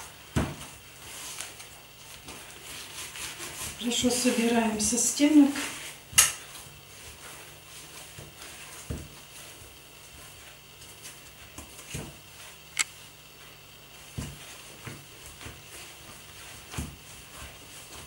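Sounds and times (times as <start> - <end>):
hands kneading dough: 0.0 - 18.0.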